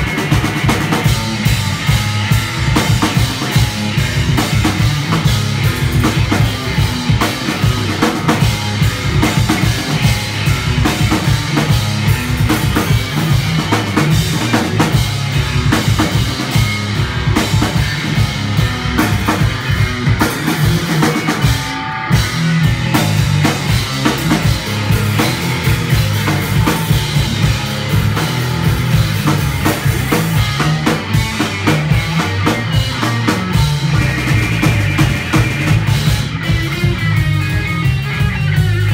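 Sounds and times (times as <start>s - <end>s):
fast drumming: 0.0s - 38.9s
punk rock band playing: 0.0s - 38.9s.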